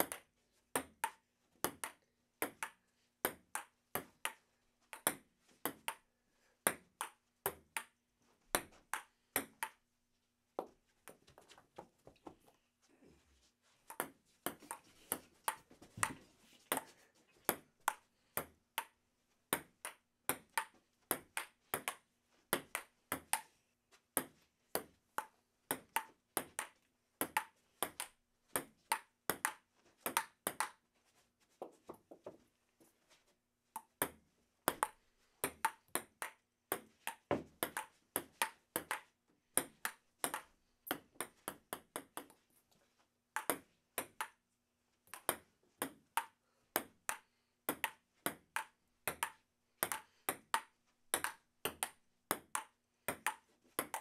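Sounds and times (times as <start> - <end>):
ping-pong ball hitting paddles: 0.0 - 9.8, 13.9 - 16.9, 17.5 - 23.5, 24.2 - 30.8, 33.8 - 42.4, 43.4 - 44.4, 45.0 - 54.0.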